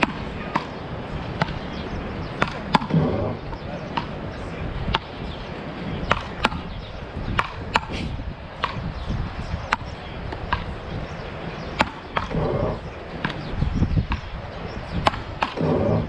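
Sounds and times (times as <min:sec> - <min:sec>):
ball clacking off wooden paddles: 0:15.0 - 0:16.0.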